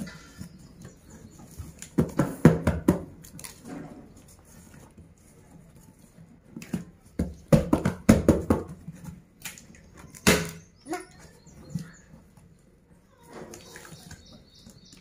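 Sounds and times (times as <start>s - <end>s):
knocks and rustles on cardboard: 1.5s - 3.2s, 6.5s - 9.2s.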